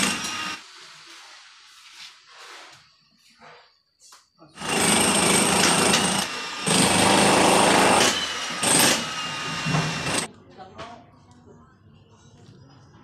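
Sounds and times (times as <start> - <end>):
power tool on concrete: 0.0 - 0.7, 4.6 - 10.3.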